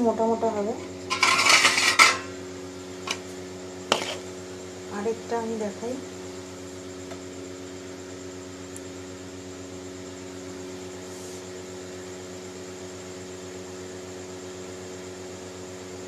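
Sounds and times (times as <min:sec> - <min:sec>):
electrical hum with hiss: 0:00.0 - 0:16.0.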